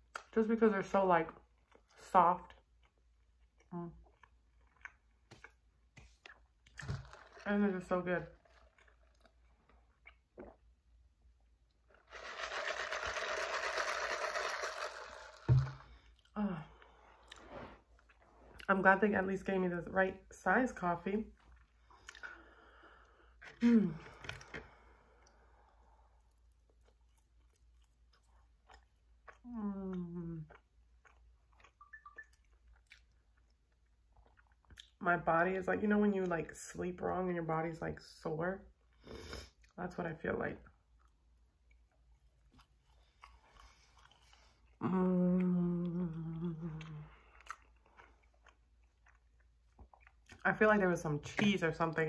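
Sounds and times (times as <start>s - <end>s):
woman chewing food: 1.4s - 7.4s, 8.3s - 12.1s, 21.4s - 35.0s, 40.9s - 44.8s, 45.8s - 50.4s
woman sighing: 23.5s - 24.4s
woman humming mmm: 29.5s - 30.6s, 44.8s - 47.3s.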